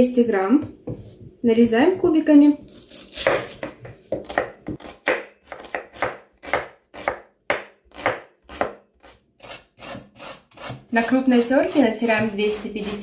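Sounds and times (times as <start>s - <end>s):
knife chopping on wooden board: 3.1s - 11.0s, 11.7s - 13.0s.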